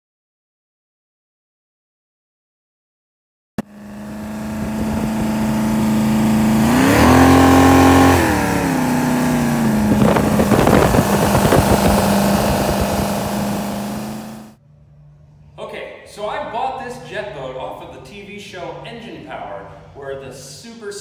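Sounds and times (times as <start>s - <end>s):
boat engine revving: 3.6s - 14.6s
rough rushing noise: 3.6s - 14.6s.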